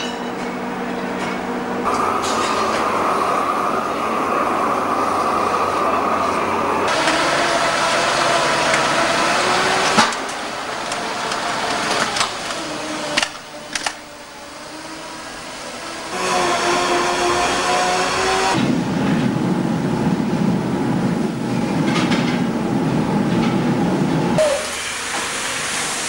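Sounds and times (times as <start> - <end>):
foundry machinery whining: 0.0 - 26.0
gas torch flame hissing: 24.4 - 26.0.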